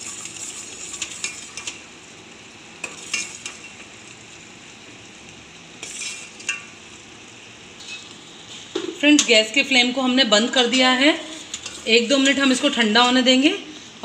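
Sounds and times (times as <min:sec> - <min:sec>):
metal utensils scraping a pot: 0:00.0 - 0:01.8, 0:02.8 - 0:03.8, 0:05.8 - 0:06.6, 0:07.8 - 0:08.1, 0:10.6 - 0:13.2
syrup bubbling in a pot: 0:00.0 - 0:08.7.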